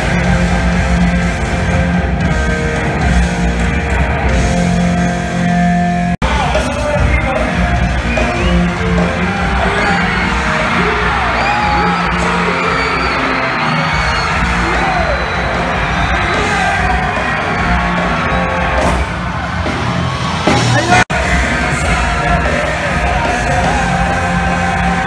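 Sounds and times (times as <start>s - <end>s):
live rock band playing: 0.0s - 25.0s
voices yelling: 8.2s - 25.0s.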